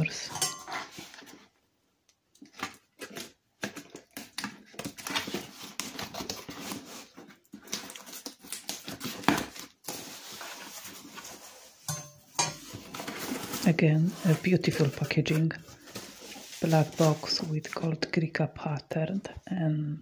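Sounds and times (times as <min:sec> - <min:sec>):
cardboard rustling: 0:02.4 - 0:11.9, 0:12.6 - 0:17.9.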